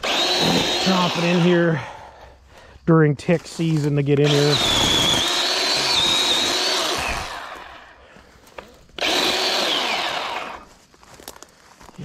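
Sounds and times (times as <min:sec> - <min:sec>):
power saw whining: 0:00.0 - 0:01.9, 0:03.8 - 0:10.7.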